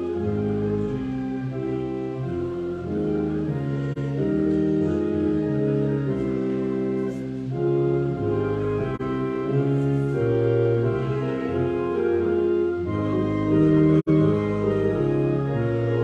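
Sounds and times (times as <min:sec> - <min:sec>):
church organ playing a hymn: 0:00.0 - 0:16.0.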